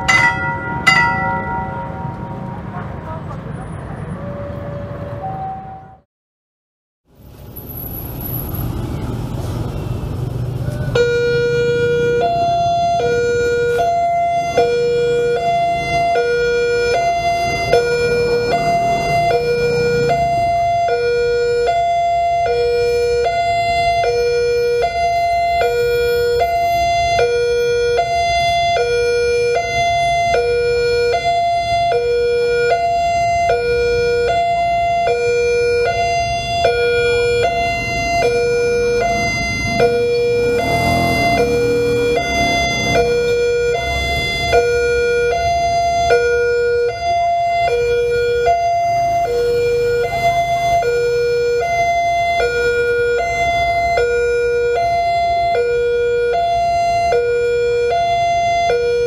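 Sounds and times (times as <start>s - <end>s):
level crossing alarm two-tone: 0.0s - 2.4s
road traffic rumble: 0.0s - 6.0s, 7.1s - 59.0s.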